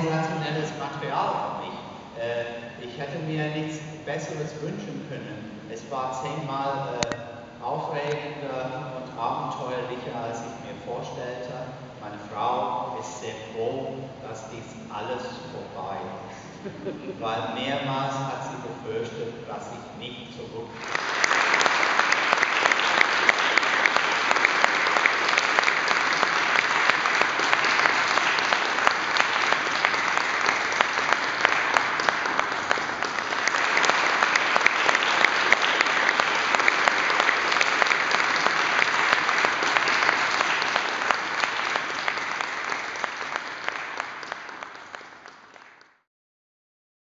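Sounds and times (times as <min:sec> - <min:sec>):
audience applauding: 0:20.8 - 0:46.0.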